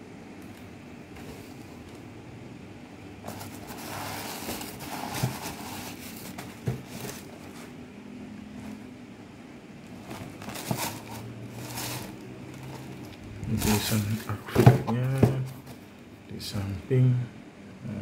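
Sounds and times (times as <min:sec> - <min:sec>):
low steady hum: 0:00.0 - 0:18.0
tissue paper rustling: 0:03.3 - 0:07.7, 0:10.0 - 0:14.3.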